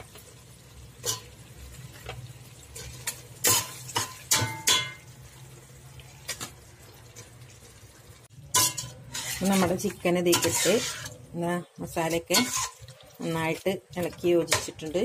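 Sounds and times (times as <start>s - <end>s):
spoon clinking against metal pot: 3.4s - 5.0s, 8.5s - 11.0s.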